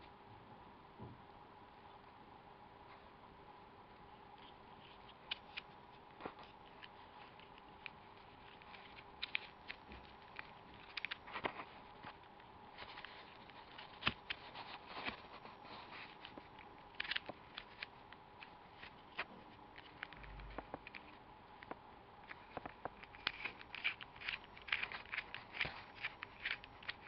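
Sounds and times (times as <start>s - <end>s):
faint steady hum: 0.0s - 27.0s
plastic puzzle cube clicking: 6.6s - 11.4s, 22.3s - 27.0s.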